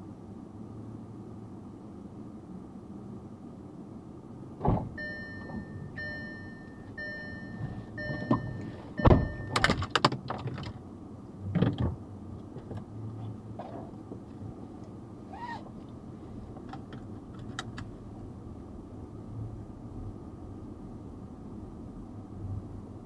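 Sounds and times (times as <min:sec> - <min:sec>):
car engine hum: 0:00.0 - 0:23.0
car door thump: 0:04.6 - 0:05.6, 0:07.6 - 0:09.8
car warning chime beeping: 0:05.0 - 0:09.8
clunks and clicks: 0:07.5 - 0:10.8.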